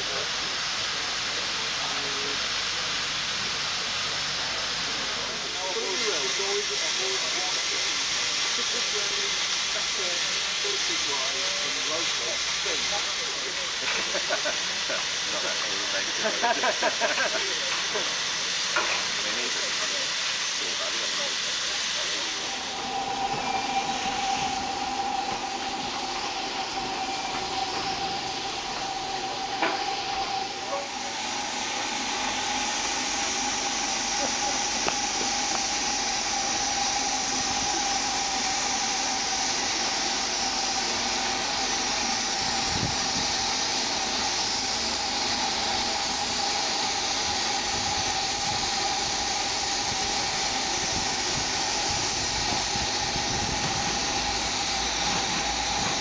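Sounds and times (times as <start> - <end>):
steam locomotive hissing steam: 0.0 - 56.0
steady whistling tone: 22.0 - 56.0.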